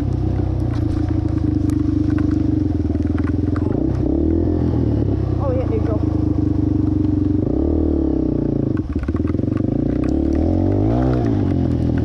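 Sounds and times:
clicks and clatter: 0.0 - 4.0, 8.7 - 12.0
motorcycle engine revving: 0.0 - 12.0.

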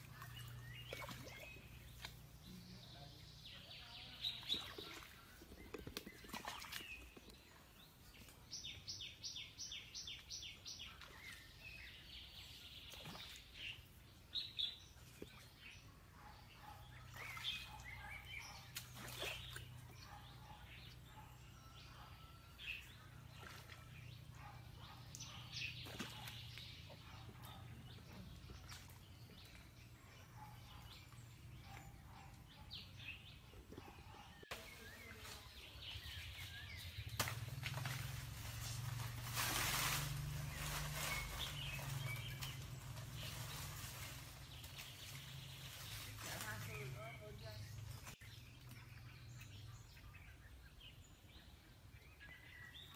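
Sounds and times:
birds chirping: 0.0 - 52.9.

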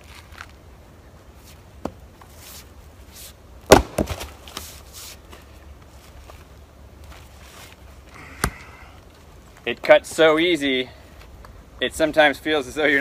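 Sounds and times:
axe splitting log crack: 3.6 - 4.6.

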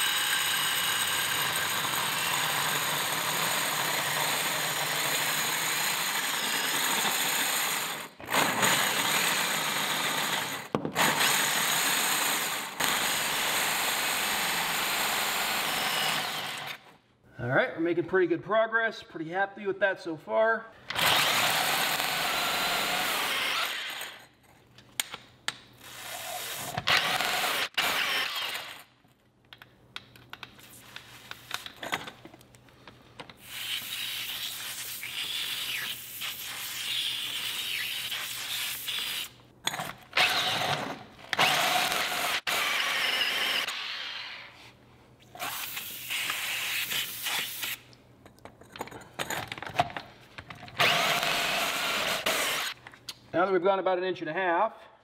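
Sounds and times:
drill core bit grinding concrete: 0.0 - 16.8, 50.8 - 52.8.

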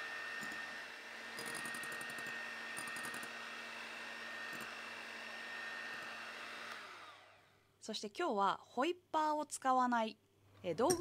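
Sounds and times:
electric hand mixer whine: 0.0 - 7.6.

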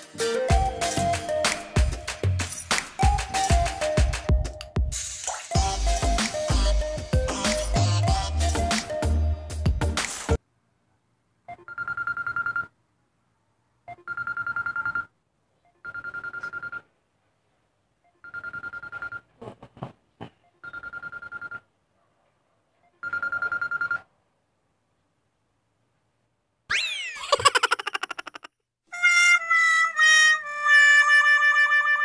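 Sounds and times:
phone alarm beeping: 15.7 - 16.8, 23.0 - 24.0.

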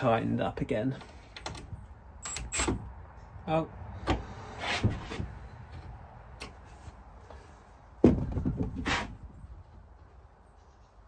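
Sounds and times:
short scrape: 4.3 - 5.3.

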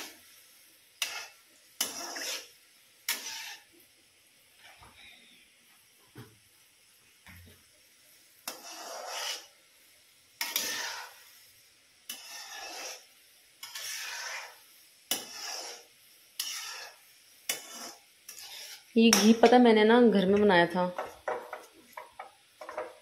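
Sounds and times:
metal spoon scraping iron pan: 1.0 - 2.5, 3.1 - 3.7, 8.4 - 9.5, 10.4 - 11.2, 12.1 - 19.6, 21.0 - 23.0.

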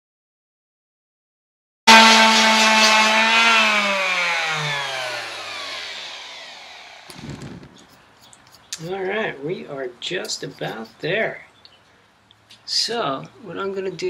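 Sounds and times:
palm sander motor whine: 1.9 - 8.0.

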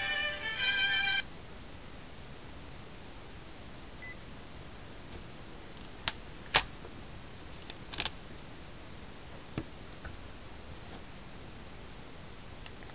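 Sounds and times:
faint phone beep: 4.0 - 4.2
sharp plastic clicks: 7.6 - 8.2.

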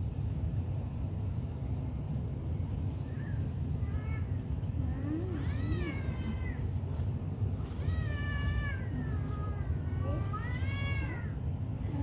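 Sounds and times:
steady low rumble: 0.0 - 12.0
cat meowing: 5.0 - 6.6, 7.7 - 12.0.

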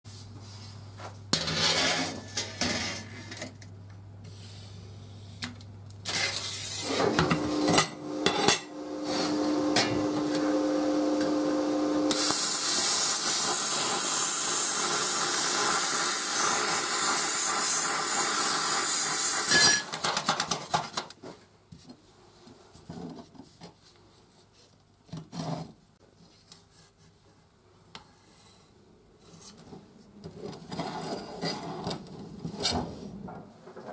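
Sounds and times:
hand grinder cutting steel: 12.1 - 19.9
steel clinking on workbench: 19.4 - 20.0.

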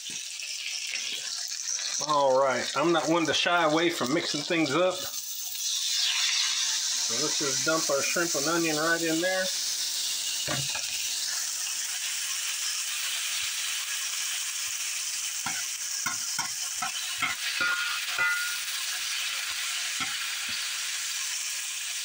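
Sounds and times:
food sizzling in a skillet: 0.0 - 22.0
metal utensil scraping a skillet: 15.4 - 20.7.

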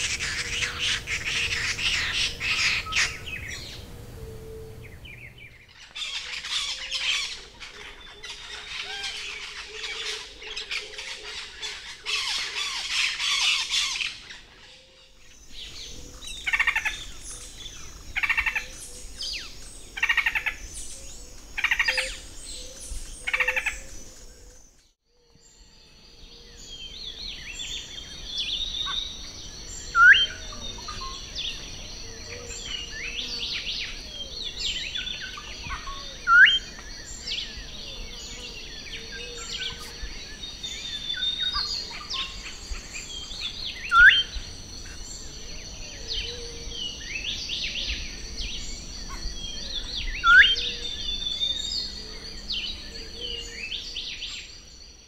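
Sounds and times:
forest birds calling: 0.0 - 55.0
bird repeating song phrase: 43.7 - 44.4.

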